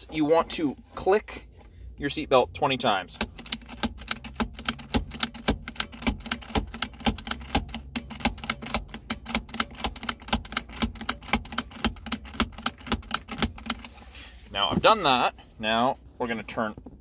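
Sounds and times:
seat belt buckle clicks: 0:03.2 - 0:14.0.

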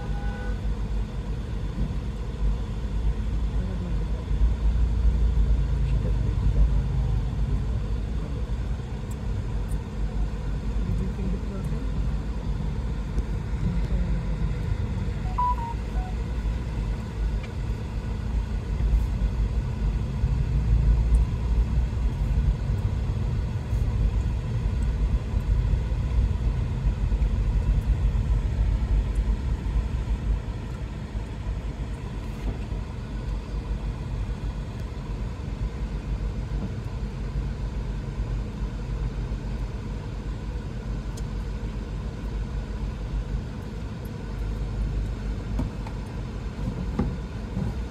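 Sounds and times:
car interior rumble: 0:00.0 - 0:47.9.

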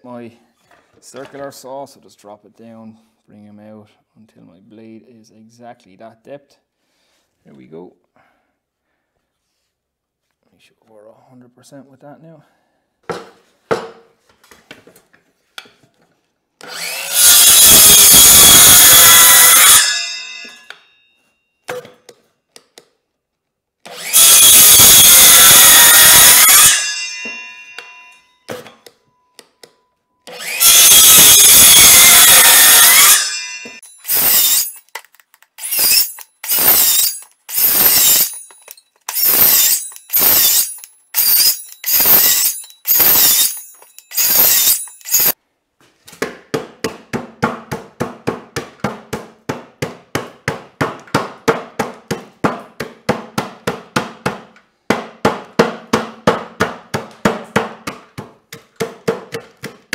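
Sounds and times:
circular saw cutting wood: 0:16.6 - 0:20.8, 0:23.9 - 0:28.2, 0:30.3 - 0:34.9, 0:35.6 - 0:45.4.

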